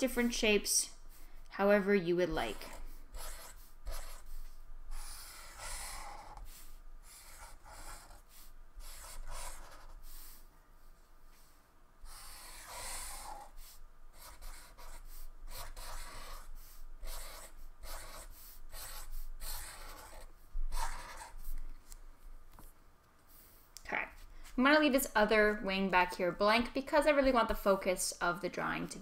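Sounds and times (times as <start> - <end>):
marker scratching on paper: 2.3 - 10.4, 12.0 - 21.6.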